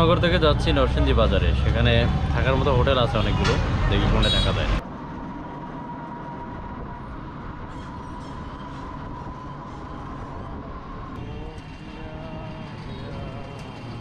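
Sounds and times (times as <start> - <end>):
auto-rickshaw motor: 0.0 - 4.8, 8.7 - 14.0
road rumble: 0.0 - 14.0.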